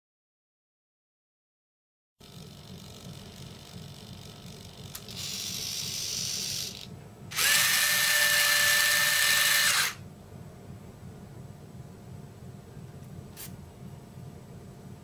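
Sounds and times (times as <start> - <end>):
steady motor whine: 2.2 - 10.0
faint electric whir: 2.2 - 10.1.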